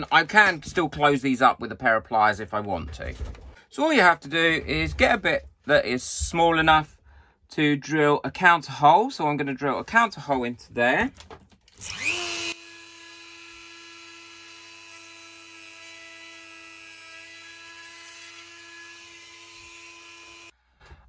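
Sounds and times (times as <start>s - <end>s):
rotary tool whining: 11.7s - 20.5s.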